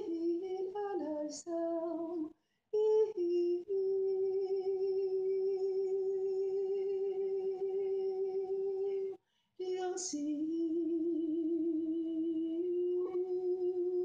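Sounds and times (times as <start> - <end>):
woman singing long notes: 0.0 - 14.0.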